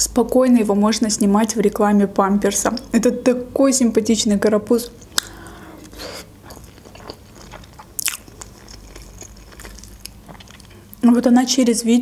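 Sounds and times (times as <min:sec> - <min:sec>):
person chewing food wetly: 0:05.0 - 0:11.0.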